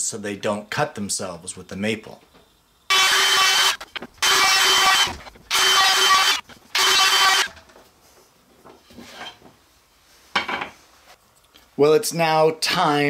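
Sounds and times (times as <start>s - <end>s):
router cutting wood: 2.9s - 7.5s.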